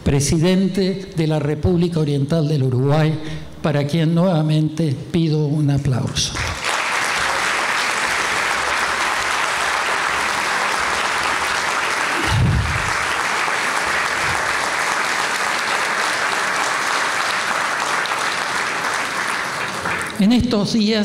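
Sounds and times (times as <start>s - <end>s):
audience applauding: 6.3s - 20.4s.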